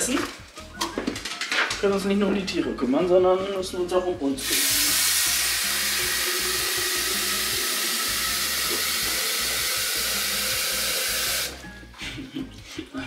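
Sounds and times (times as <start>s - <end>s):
kitchen tap running: 4.4s - 11.6s.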